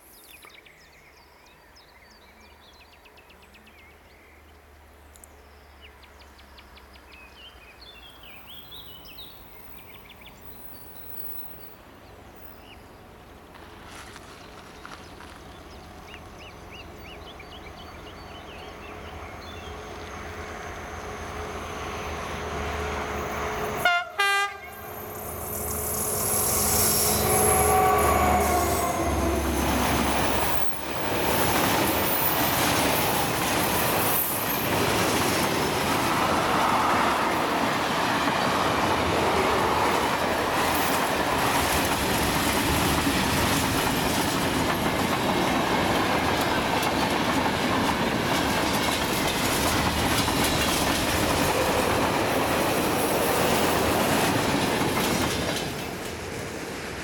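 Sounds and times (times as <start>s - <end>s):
diesel locomotive engine: 8.2s - 57.0s
train horn blast: 23.6s - 29.8s
wheels clacking over rail joints: 27.7s - 56.6s.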